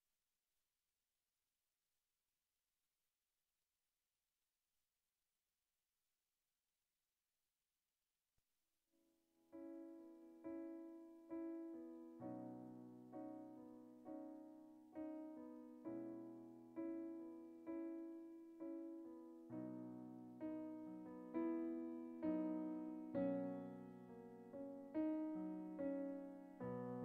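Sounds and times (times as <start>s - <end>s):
gentle piano chords: 9.5s - 27.0s.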